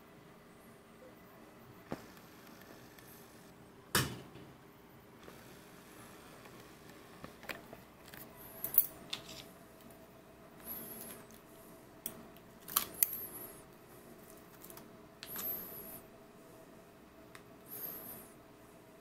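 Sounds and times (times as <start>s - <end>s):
faint steady hum: 0.0s - 19.0s
packaging clicks: 12.4s - 13.2s.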